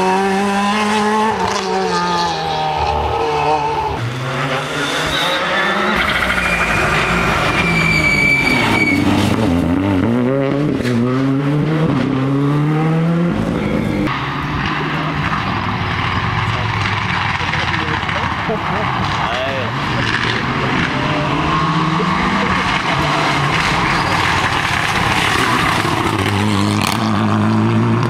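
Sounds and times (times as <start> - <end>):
rally car engines passing: 0.0 - 28.0.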